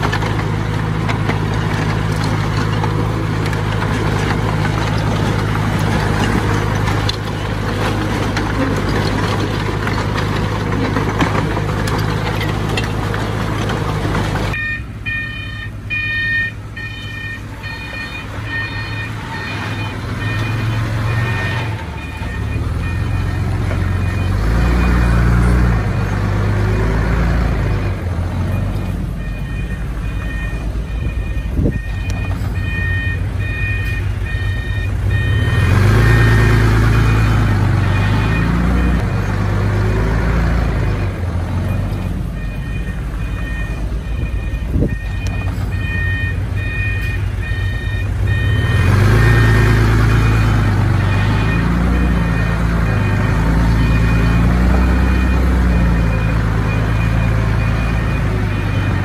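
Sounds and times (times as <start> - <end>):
diesel machine engine revving: 0.0 - 59.0
reversing alarm beeping: 14.5 - 39.2, 39.8 - 59.0.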